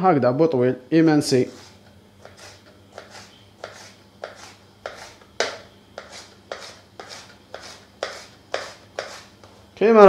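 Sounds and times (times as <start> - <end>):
knife slicing pepper: 1.6 - 9.4.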